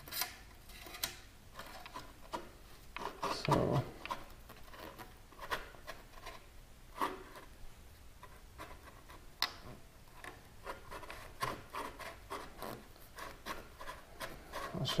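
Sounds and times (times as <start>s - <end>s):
metal clicks and rubbing: 0.0s - 6.4s.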